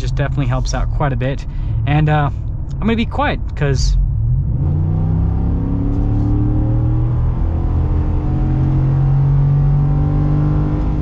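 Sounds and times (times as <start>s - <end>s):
truck engine accelerating: 0.0s - 11.0s.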